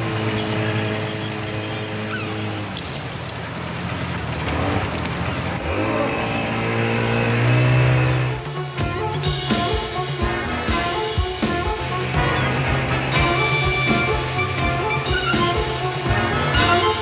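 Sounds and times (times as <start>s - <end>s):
sea wash: 0.0s - 7.2s
motorboat engine running: 0.0s - 17.0s.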